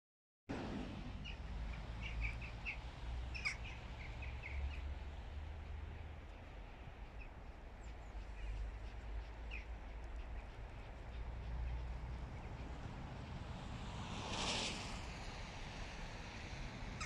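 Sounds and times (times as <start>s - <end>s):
steady low rumble: 0.5s - 17.0s
small birds chirping: 1.2s - 5.0s, 6.3s - 12.8s.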